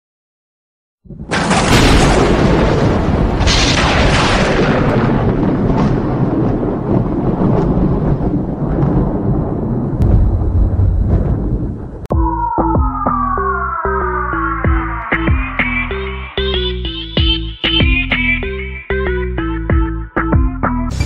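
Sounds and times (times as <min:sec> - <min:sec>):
explosion-like rumble: 0:01.0 - 0:12.1.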